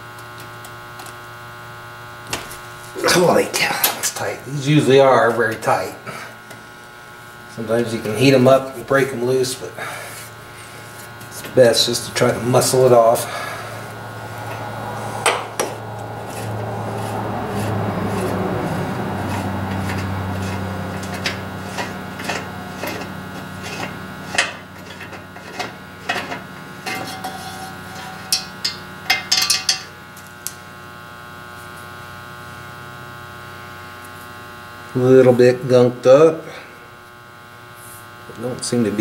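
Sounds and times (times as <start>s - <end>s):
electrical hum: 0.0s - 39.0s.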